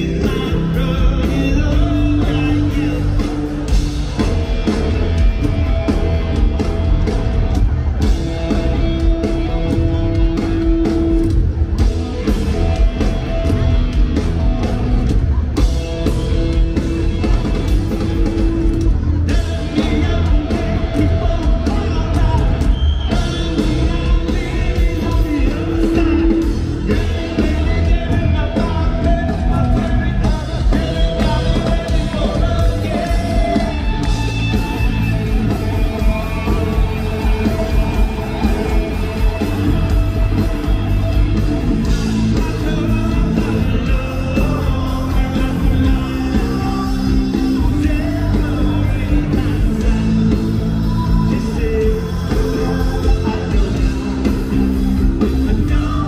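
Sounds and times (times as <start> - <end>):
person singing: 0.0 - 4.8, 18.2 - 56.0
rock band playing live: 0.0 - 56.0.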